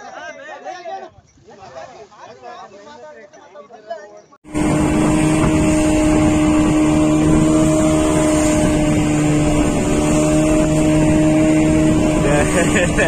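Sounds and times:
boat engine droning: 0:04.5 - 0:13.0
water rushing along hull: 0:04.5 - 0:13.0.

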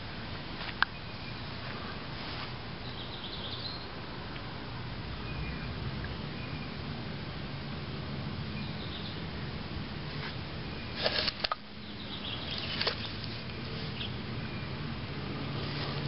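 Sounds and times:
faint bird chirps: 0:02.8 - 0:04.0, 0:08.5 - 0:09.2
sharp clicks: 0:11.0 - 0:11.6.

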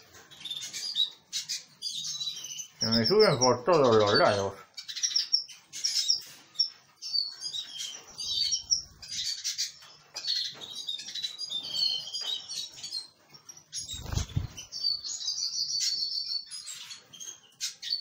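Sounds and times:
finches chirping and twittering: 0:00.0 - 0:18.0
wings fluttering: 0:13.8 - 0:14.8.

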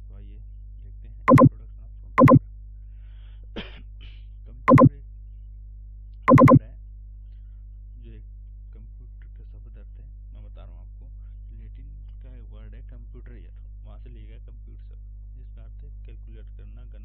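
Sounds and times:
sharp clicks: 0:01.3 - 0:01.5, 0:02.2 - 0:02.4, 0:04.7 - 0:04.9, 0:06.3 - 0:06.6.

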